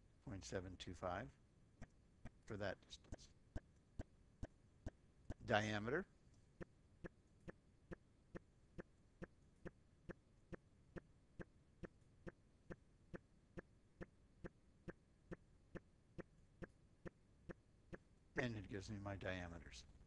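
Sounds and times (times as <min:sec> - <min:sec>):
faint even ticking: 0:06.6 - 0:18.5.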